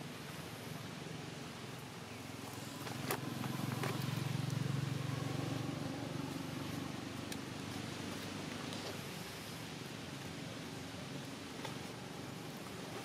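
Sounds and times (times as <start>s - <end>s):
distant vehicle engine drone: 0.0s - 13.0s.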